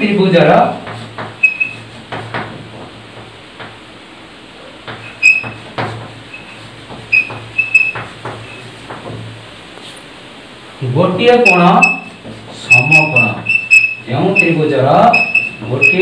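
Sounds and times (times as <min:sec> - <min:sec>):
chalk tapping and scratching: 0:00.8 - 0:03.8, 0:04.8 - 0:10.1
high-pitched chalk squeaks: 0:01.4 - 0:02.0, 0:05.0 - 0:05.7, 0:06.3 - 0:08.8, 0:11.4 - 0:16.0.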